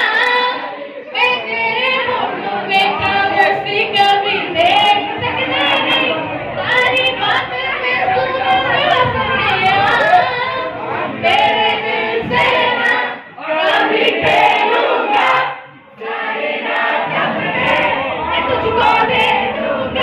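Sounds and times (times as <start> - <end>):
woman singing into a microphone: 0.0 - 13.3.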